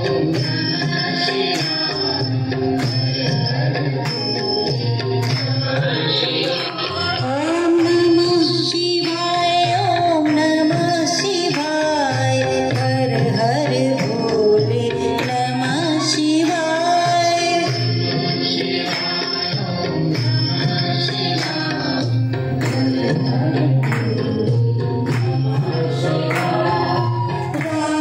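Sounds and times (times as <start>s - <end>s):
instrumental accompaniment with beat: 0.0s - 28.0s
woman singing into microphone: 5.9s - 23.7s, 25.3s - 28.0s.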